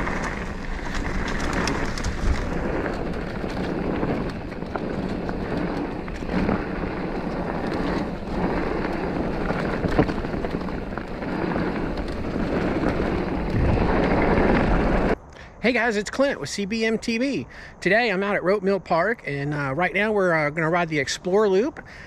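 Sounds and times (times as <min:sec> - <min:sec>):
wind buffeting microphone: 0:00.0 - 0:17.5
bike tyres rumbling on dirt: 0:00.0 - 0:22.0.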